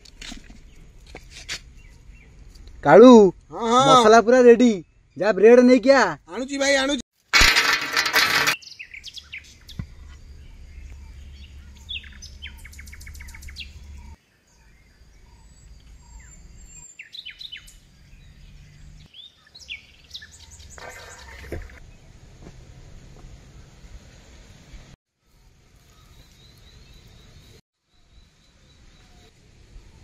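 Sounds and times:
small birds chirping: 0.5s - 2.9s, 8.6s - 22.0s, 25.8s - 30.0s.

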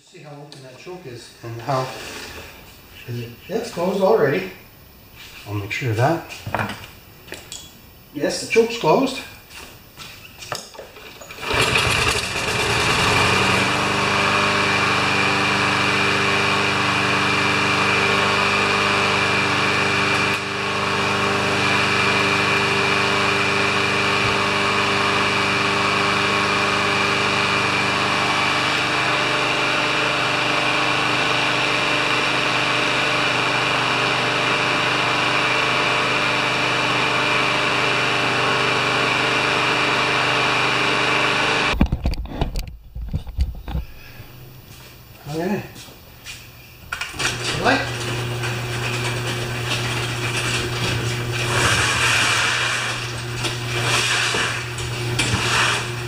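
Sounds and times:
lawn mower engine running: 11.0s - 41.8s, 46.9s - 56.0s.

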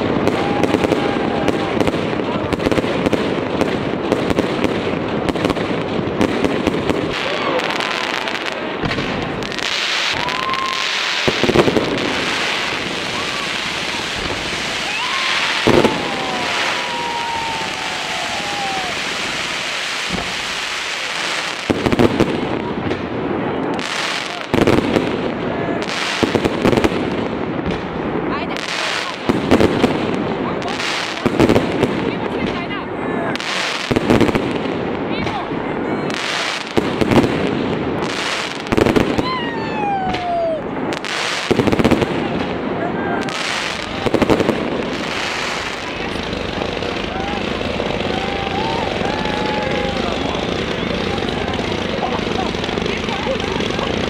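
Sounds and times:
descending firework whistle: 0.0s - 2.0s, 9.4s - 21.6s, 38.7s - 41.2s, 42.9s - 52.1s
fireworks bangs: 0.0s - 54.0s
fireworks crackling and hissing: 0.0s - 54.0s
long falling whistle: 10.2s - 11.0s, 39.2s - 40.6s.

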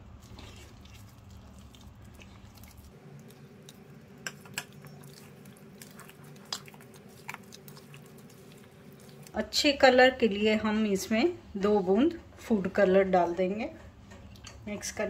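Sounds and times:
wet squelching of batter: 0.0s - 9.9s.

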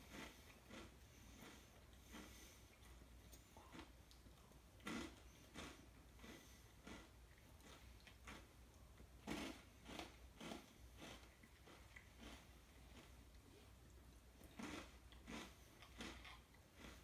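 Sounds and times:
person chewing food: 0.0s - 17.0s.

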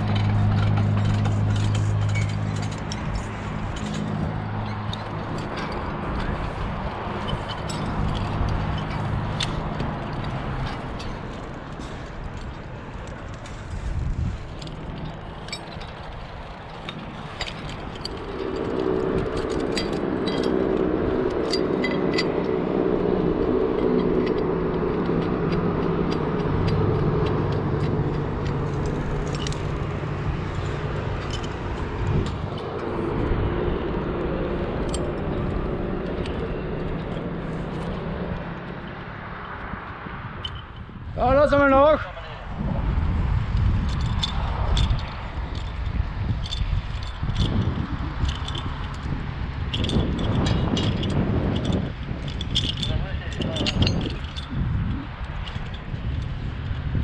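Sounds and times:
engine running: 0.0s - 40.8s
climbing gear clinking: 0.0s - 42.0s, 42.6s - 57.0s.

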